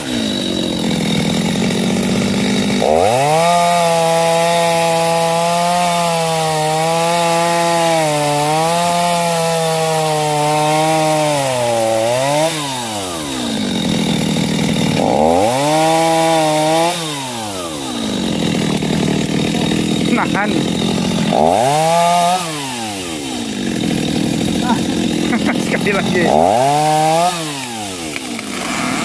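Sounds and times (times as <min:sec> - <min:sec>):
chainsaw cutting tree trunk: 0:00.0 - 0:29.0.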